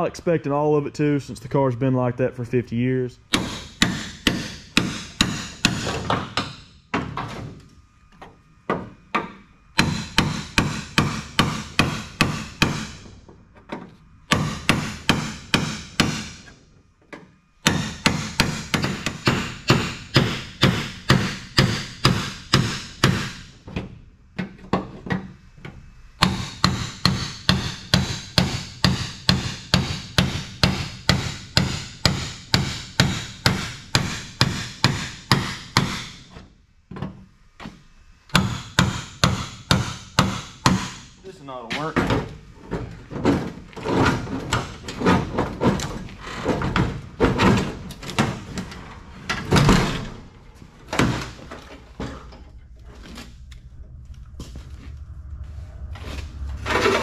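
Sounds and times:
hammer striking chisel on metal: 3.3 - 6.7, 8.7 - 13.1, 14.3 - 16.4, 17.6 - 23.5, 26.2 - 36.2, 38.3 - 41.1.

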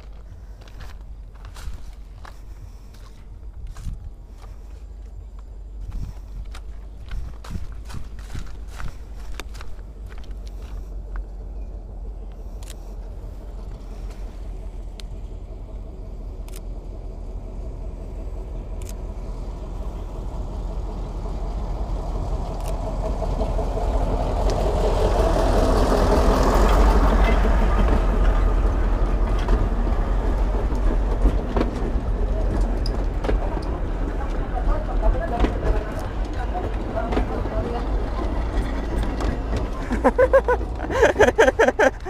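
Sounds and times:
train rumbling past: 0.0 - 42.0.

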